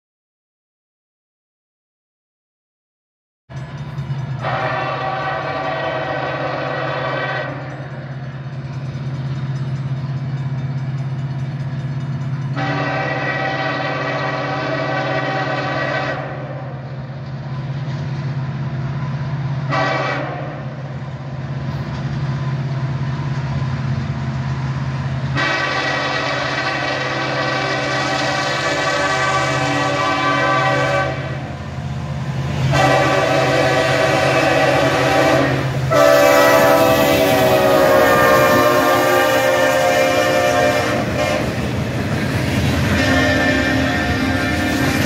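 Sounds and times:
train low rumble: 3.5 - 45.0
locomotive air horn blasts: 4.4 - 7.7, 12.6 - 16.7, 19.7 - 20.8, 25.3 - 31.5, 32.7 - 41.6, 42.9 - 45.0.

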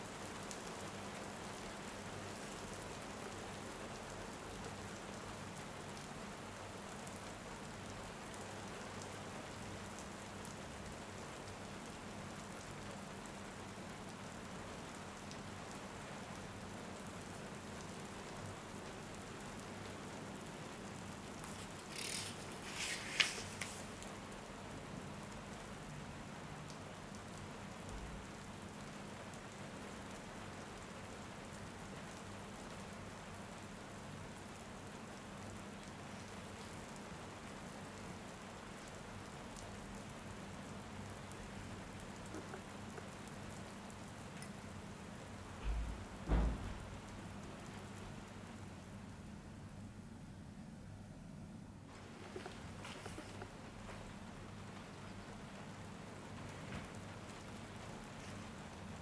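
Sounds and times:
steady rain falling: 0.0 - 59.0
low thump: 45.6 - 46.9.

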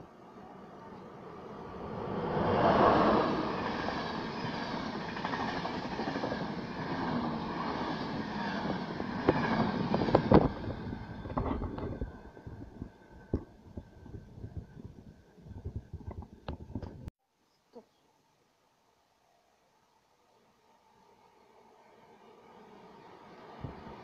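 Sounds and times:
passenger train passing: 0.0 - 15.6, 20.8 - 24.0.

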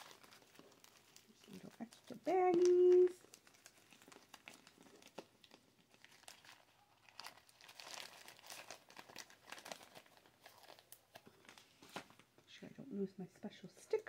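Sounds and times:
plastic baggies crinkling: 0.0 - 12.5.

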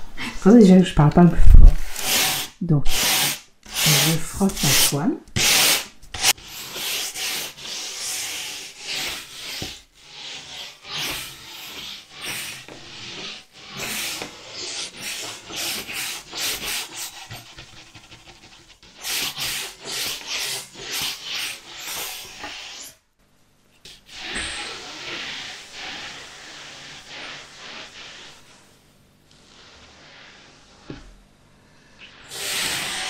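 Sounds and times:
brush bristles rasping: 1.8 - 22.9.

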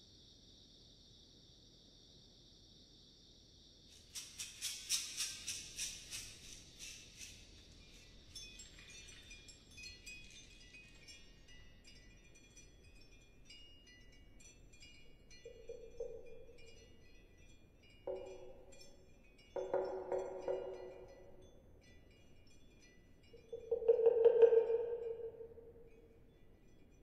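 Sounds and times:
high tinkling chime tones: 7.9 - 27.0.

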